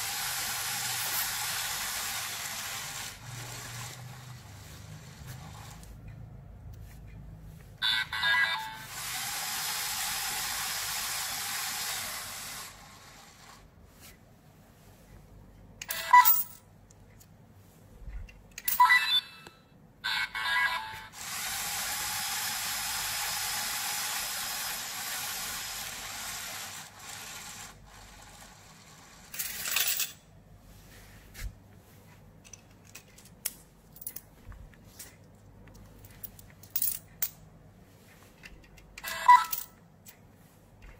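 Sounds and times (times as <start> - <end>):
motor whirring hiss: 0.0 - 5.8, 8.9 - 13.7, 21.2 - 29.3
short electronic beeps: 18.8 - 21.1.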